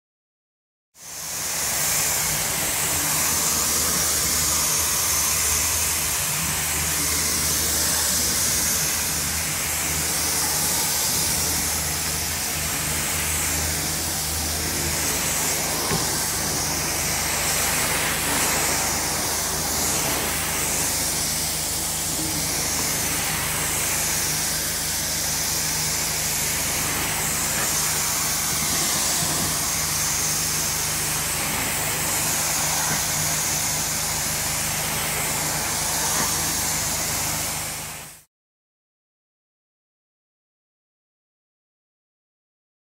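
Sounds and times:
extraction wand rushing hiss: 0:01.0 - 0:38.3
extraction machine low hum: 0:01.2 - 0:38.1.

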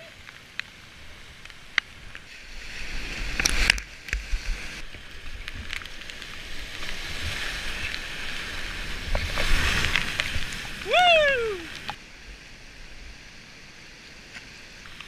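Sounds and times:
whitewater rushing: 0:02.4 - 0:12.0.

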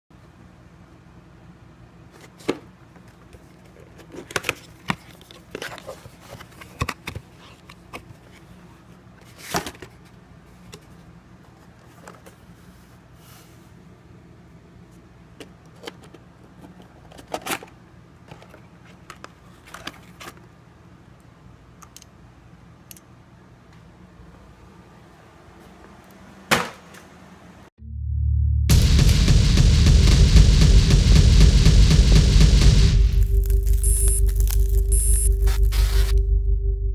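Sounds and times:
cardboard and plastic rustling: 0:02.2 - 0:08.6, 0:09.2 - 0:12.9, 0:15.7 - 0:20.5
steady low hum: 0:27.8 - 0:36.9.

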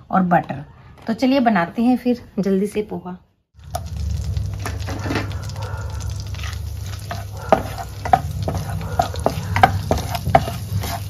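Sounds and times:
butter sizzling in a pan: 0:03.6 - 0:11.0
wooden spatula knocking on pan: 0:07.4 - 0:11.0.

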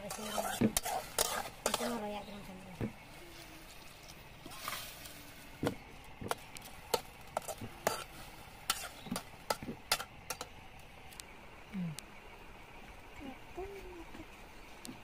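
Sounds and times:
metal spatula scraping a wok: 0:00.0 - 0:02.1, 0:04.4 - 0:05.4, 0:06.3 - 0:10.5.

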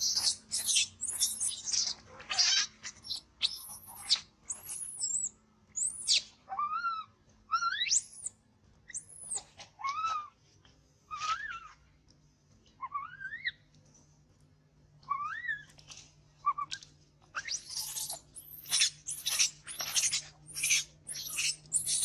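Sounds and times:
baby monkey screaming: 0:00.0 - 0:08.3, 0:08.9 - 0:10.4, 0:11.1 - 0:11.8, 0:12.8 - 0:13.6, 0:15.0 - 0:15.8, 0:16.4 - 0:22.0.

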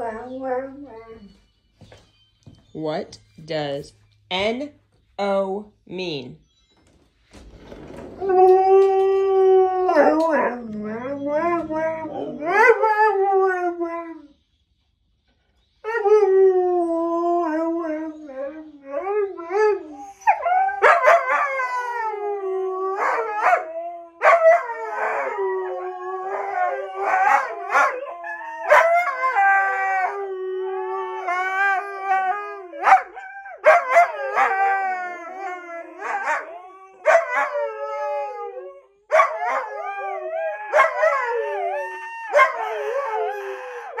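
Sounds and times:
huskies howling: 0:08.2 - 0:14.2, 0:18.9 - 0:44.0.

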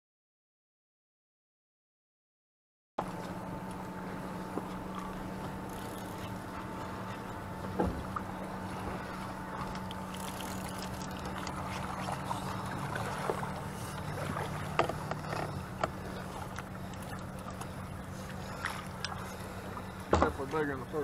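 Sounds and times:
boat motor humming: 0:03.0 - 0:21.0
fish splashing and knocking: 0:09.5 - 0:17.7.

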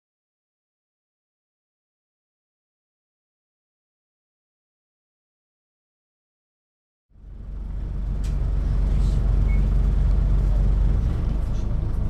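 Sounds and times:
bus diesel engine droning: 0:07.2 - 0:12.0.

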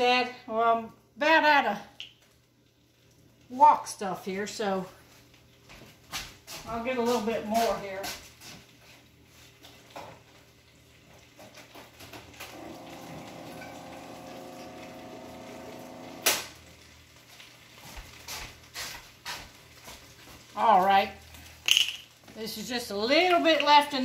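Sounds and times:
tap water running into bottle: 0:11.1 - 0:16.6
kitchen things clicking and knocking: 0:21.4 - 0:22.4, 0:23.2 - 0:24.0.

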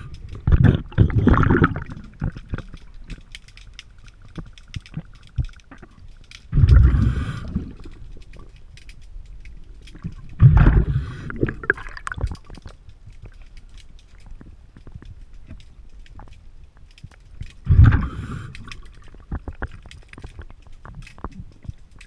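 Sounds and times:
underwater exhaled breath bubbles: 0:00.0 - 0:02.7, 0:05.7 - 0:08.1, 0:10.0 - 0:12.4, 0:17.6 - 0:19.8
faint clicks: 0:01.7 - 0:22.0.

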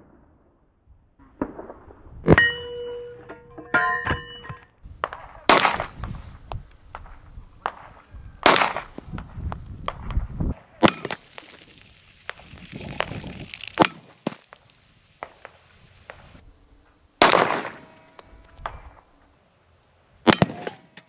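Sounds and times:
pistol shots with echo: 0:05.0 - 0:11.2, 0:17.2 - 0:19.0, 0:20.3 - 0:20.9.

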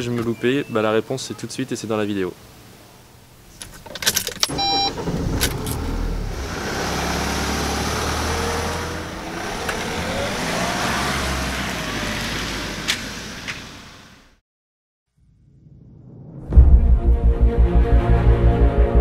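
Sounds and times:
van engine starting and running: 0:03.6 - 0:14.4
van accelerating away: 0:04.5 - 0:14.3.

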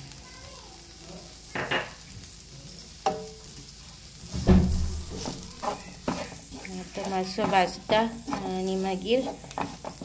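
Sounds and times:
low steady sizzle: 0:00.0 - 0:10.0
wooden spatula stirring in pan: 0:02.9 - 0:10.0.

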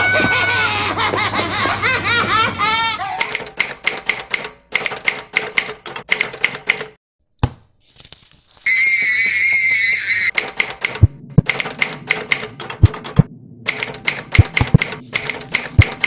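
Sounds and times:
typewriter keystroke clicks: 0:03.2 - 0:07.0, 0:10.3 - 0:16.0.

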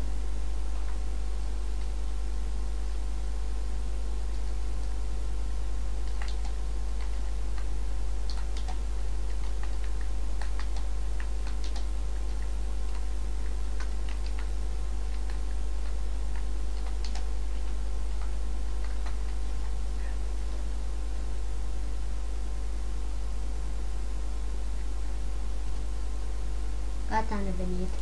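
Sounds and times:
keyboard keys clicking: 0:06.0 - 0:14.5, 0:15.1 - 0:19.8.

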